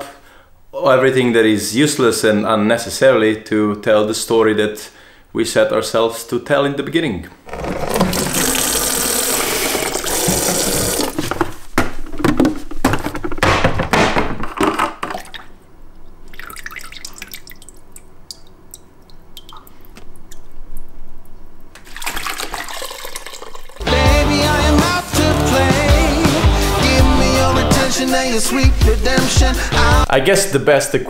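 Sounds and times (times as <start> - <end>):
tap water running into bucket: 7.5 - 11.3, 16.3 - 17.8, 21.8 - 23.8
drips and small splashes: 16.2 - 23.8.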